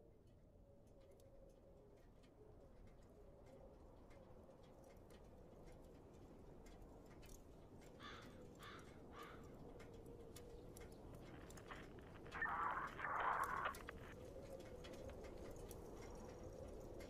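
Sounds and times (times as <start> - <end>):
faint ticks: 0.2 - 17.0
faint falling chirps: 11.8 - 14.1.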